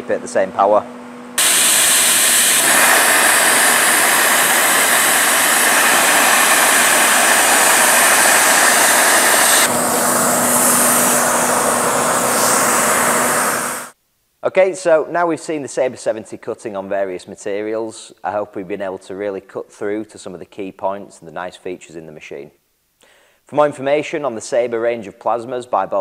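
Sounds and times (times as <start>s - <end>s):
plasma cutter hissing: 1.4s - 14.0s.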